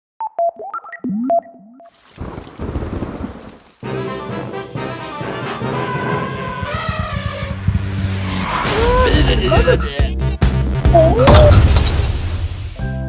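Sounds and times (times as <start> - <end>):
brass marching band with drums: 3.8 - 7.7.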